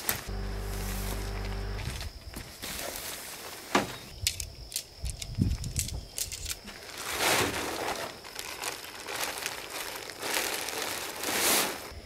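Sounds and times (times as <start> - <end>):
tent fabric rustling: 0.0 - 4.0, 6.7 - 12.0.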